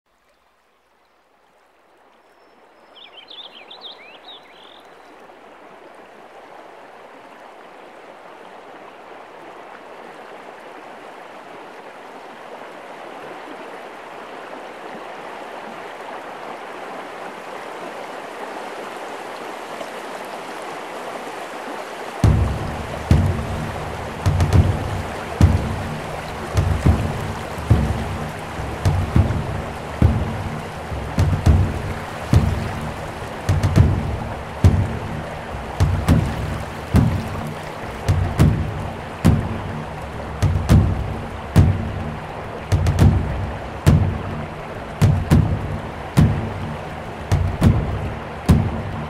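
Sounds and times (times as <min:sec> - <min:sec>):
small waterfall splashing: 0:00.1 - 0:49.0.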